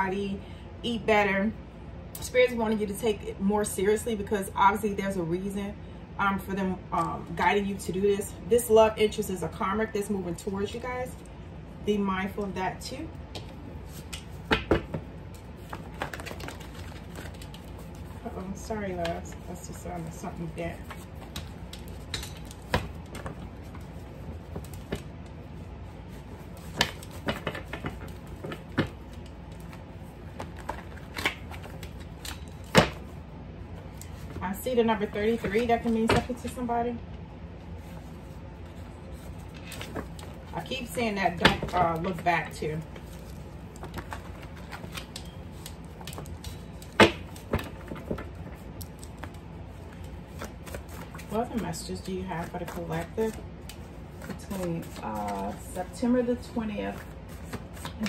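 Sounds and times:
index cards being shuffled: 0:13.3 - 0:33.2, 0:37.8 - 0:58.0.

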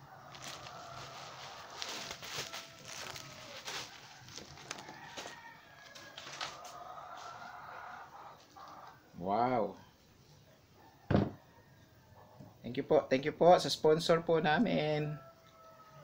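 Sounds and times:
bubble wrap crinkling: 0:00.0 - 0:07.5
rooster crowing: 0:00.0 - 0:08.9, 0:14.8 - 0:16.0.

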